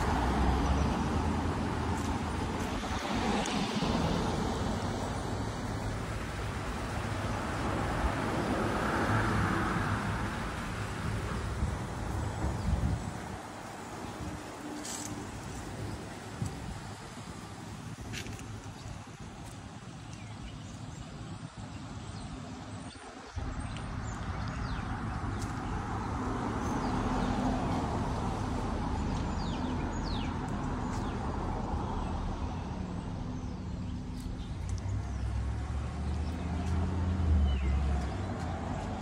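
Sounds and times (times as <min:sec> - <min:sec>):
cars passing: 0:00.0 - 0:20.6, 0:22.5 - 0:39.0
small birds chirping: 0:18.1 - 0:27.5.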